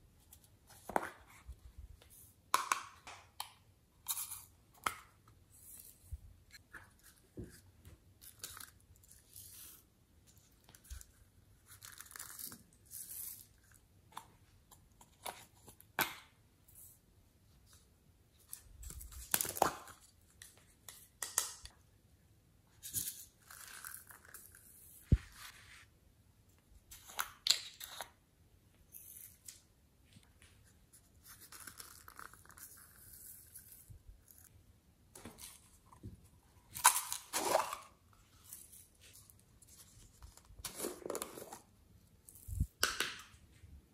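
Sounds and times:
plastic cups rustling and scraping: 35.2 - 42.7.

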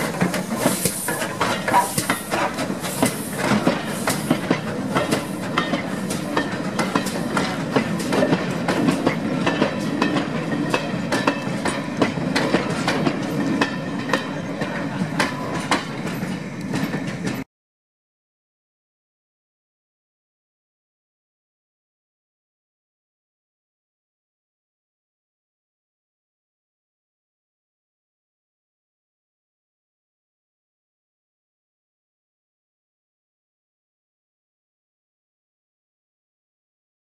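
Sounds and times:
steam locomotive exhaust chuffs: 0.0 - 17.4
train wheels clicking over rail joints: 0.0 - 17.4.

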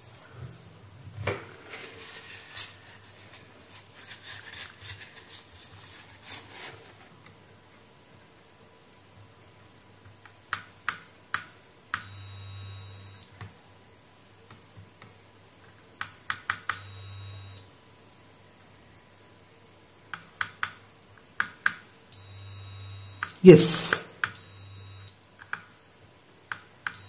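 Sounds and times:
multimeter continuity beep: 12.0 - 13.4, 16.7 - 17.8, 22.1 - 23.5, 24.2 - 25.3.

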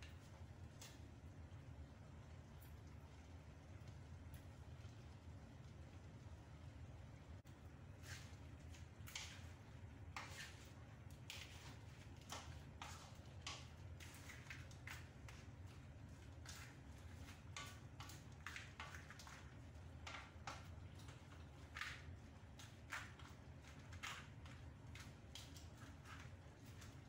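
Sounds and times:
wooden spatula scraping pan: 8.0 - 27.0.

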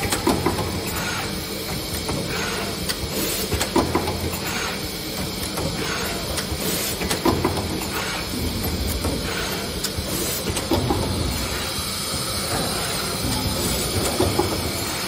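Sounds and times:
machine gripper clacks: 0.0 - 15.0
steady machine hum: 0.0 - 15.0
pneumatic hisses: 0.8 - 8.4, 9.0 - 15.0.

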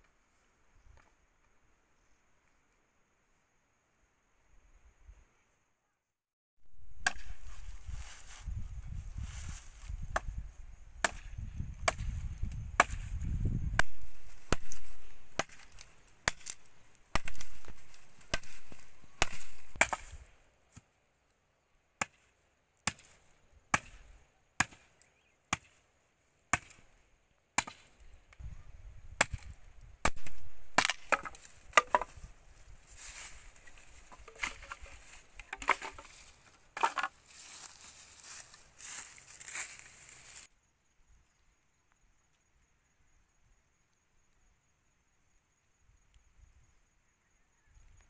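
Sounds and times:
machete chopping wooden stick: 6.9 - 7.5, 11.0 - 12.2, 12.8 - 20.2, 22.8 - 24.0, 24.6 - 24.9, 25.5 - 25.8, 26.5 - 26.8, 27.6 - 27.9, 29.2 - 32.2, 34.0 - 36.2, 36.8 - 37.2.

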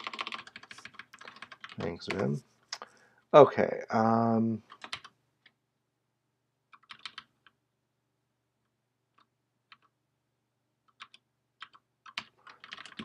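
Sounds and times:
keyboard keystrokes: 0.0 - 2.3, 6.8 - 7.3, 10.9 - 13.0.

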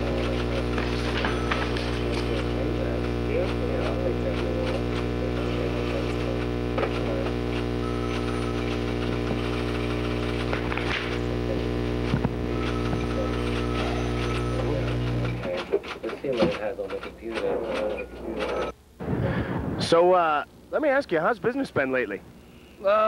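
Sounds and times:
electrical mains hum: 0.0 - 23.0.

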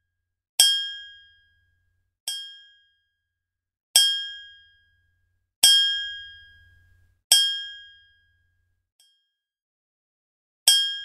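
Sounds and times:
small bell ting: 9.0 - 9.5.

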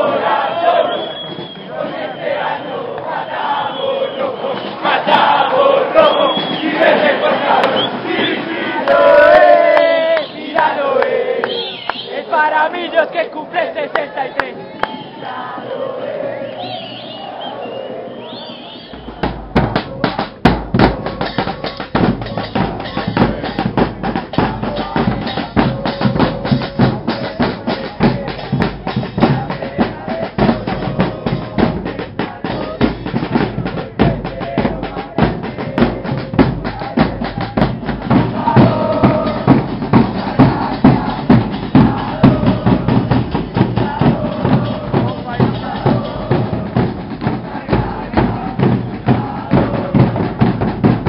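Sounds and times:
bass and snare drums beating: 4.5 - 8.3, 18.9 - 51.0.

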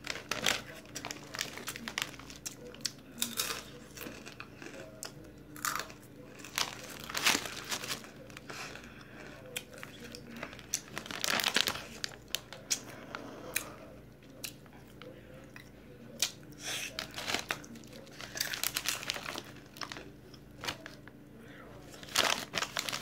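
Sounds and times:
chip bag crinkling: 0.0 - 4.9, 5.6 - 13.2, 16.8 - 21.1, 21.8 - 23.0.

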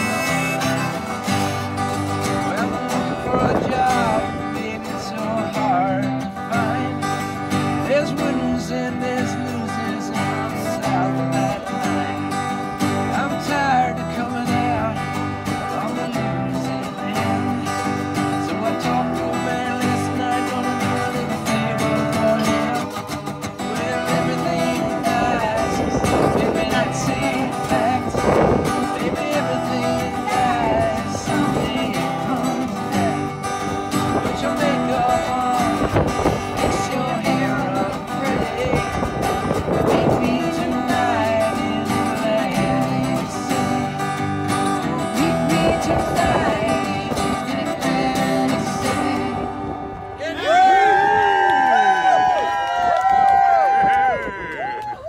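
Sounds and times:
harmonica: 0.0 - 2.6
strummed acoustic guitars: 0.0 - 54.2.

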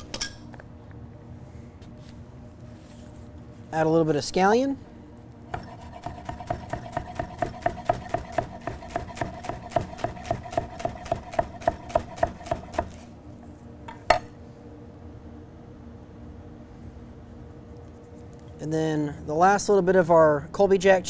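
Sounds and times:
knife chopping on wooden board: 5.5 - 13.0.

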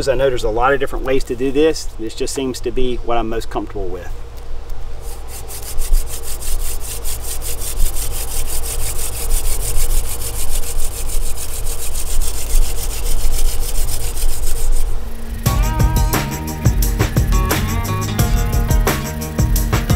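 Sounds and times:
wooden spindle rasping in hearth: 5.0 - 15.5.

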